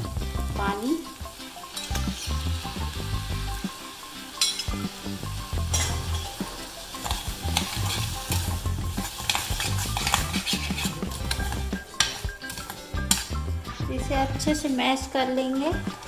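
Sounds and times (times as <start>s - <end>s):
pan sizzling: 0.0s - 16.0s
spatula scraping a pan: 5.7s - 13.2s.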